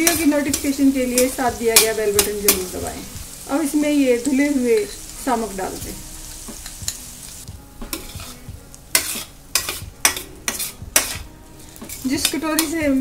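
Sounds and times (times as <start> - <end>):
spoon scraping and knocking pan: 0.0 - 3.4, 6.3 - 7.1, 7.7 - 13.0
food sizzling in hot oil: 0.0 - 13.0.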